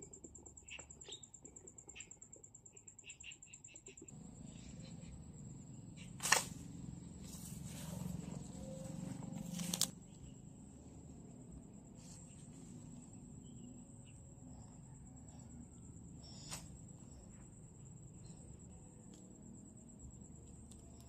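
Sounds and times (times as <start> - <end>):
insect net rustling in grass: 6.0 - 10.3.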